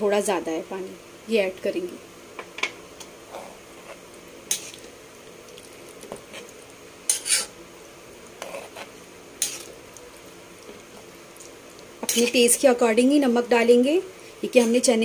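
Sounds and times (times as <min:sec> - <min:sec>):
faint sizzle: 0:00.0 - 0:15.0
spatula scraping metal pan: 0:07.1 - 0:07.5, 0:08.4 - 0:09.7, 0:12.0 - 0:12.4.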